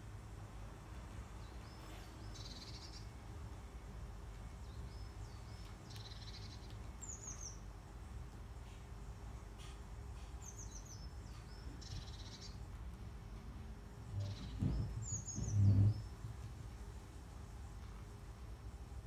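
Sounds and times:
songbird singing: 0:00.0 - 0:19.0
faint low rumble: 0:10.5 - 0:19.0.

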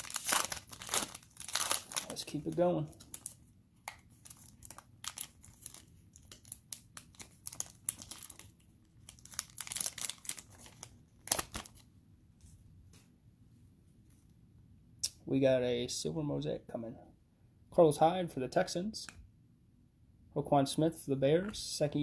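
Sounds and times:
foil wrapper crinkling and tearing: 0:00.0 - 0:03.4, 0:04.1 - 0:11.8.

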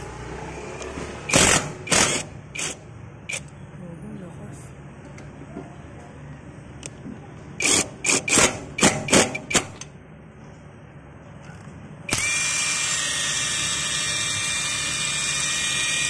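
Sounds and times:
impact wrench bursts: 0:01.3 - 0:03.5, 0:07.6 - 0:09.9, 0:12.1 - 0:16.0
impact wrench free-running whine: 0:01.3 - 0:03.5, 0:07.6 - 0:09.8, 0:12.1 - 0:16.0.

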